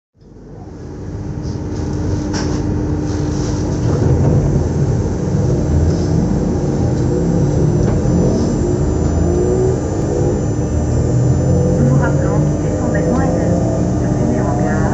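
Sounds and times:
train electrical hum: 0.2s - 14.9s
faint whine: 3.8s - 14.9s.

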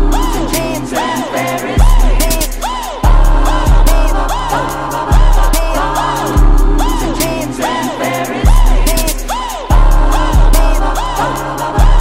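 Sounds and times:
fast hi-hat ticks: 0.0s - 12.0s
heavy bass kick: 1.8s - 4.5s, 5.1s - 7.4s, 8.4s - 11.1s, 11.8s - 12.0s.

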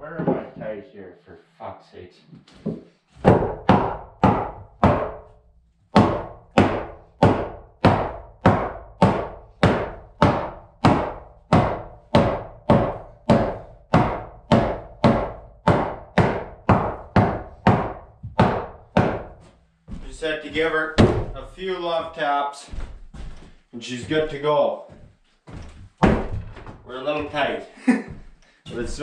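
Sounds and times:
hammer driving nails into wood: 6.0s - 19.3s.

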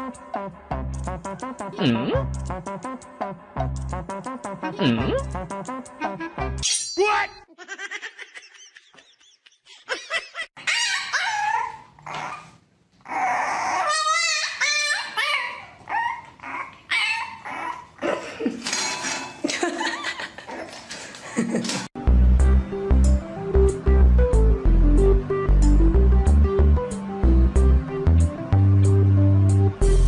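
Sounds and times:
puppy whining and yipping: 10.6s - 18.0s
puppy barking: 13.6s - 17.8s.

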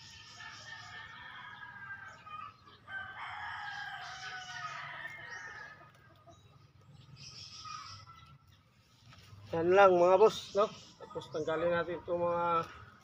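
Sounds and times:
roosters crowing: 0.0s - 8.5s.

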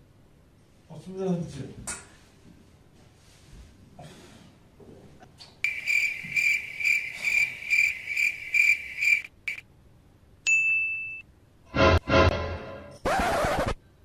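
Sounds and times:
cricket chirping: 5.6s - 9.6s.

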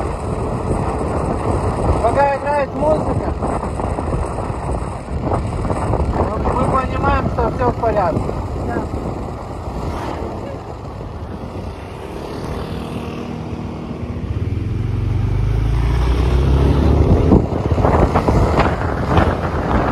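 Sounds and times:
wind buffeting microphone: 0.0s - 19.9s
motor scooter engine speeding up: 8.1s - 19.9s.

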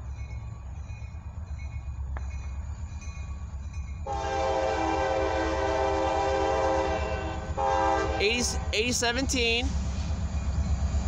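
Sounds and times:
locomotive air horn blast: 4.1s - 8.6s.

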